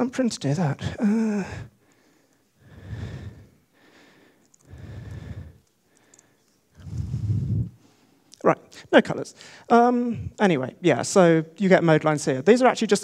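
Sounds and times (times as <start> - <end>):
man breathing into microphone: 1.4 - 8.2.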